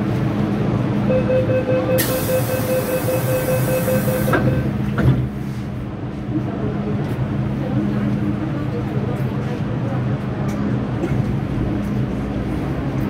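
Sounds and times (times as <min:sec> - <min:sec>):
train hum: 0:00.0 - 0:13.0
rapid warning beeps: 0:01.1 - 0:04.7
train doors bumping shut: 0:04.0 - 0:05.4.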